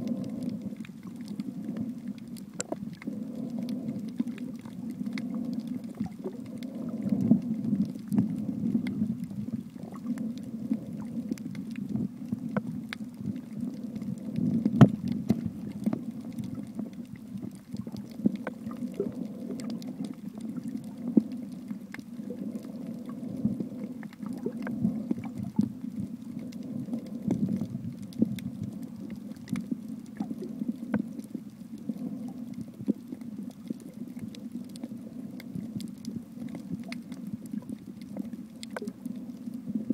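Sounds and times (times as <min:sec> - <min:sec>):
muffled underwater rumble: 0:00.0 - 0:39.9
underwater clicks and crackles: 0:00.0 - 0:39.9.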